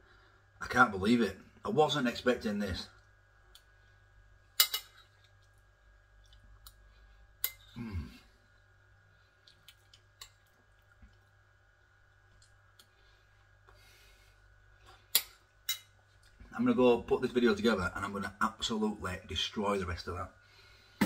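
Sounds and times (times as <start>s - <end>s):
fork clinking on plate: 4.6s - 5.0s.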